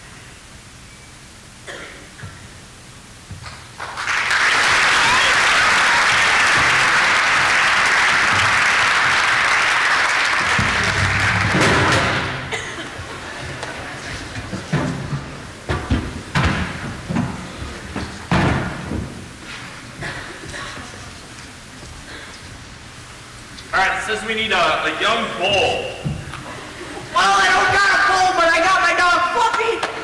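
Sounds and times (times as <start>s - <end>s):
audience applauding: 3.4s - 14.4s.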